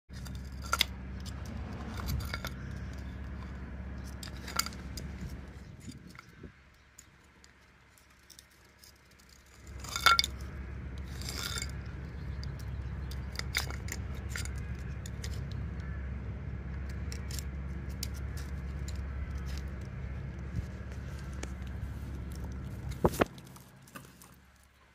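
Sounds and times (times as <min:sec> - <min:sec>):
low rumble: 0:00.1 - 0:06.6, 0:09.5 - 0:24.6
ice clinking on concrete: 0:09.5 - 0:10.4.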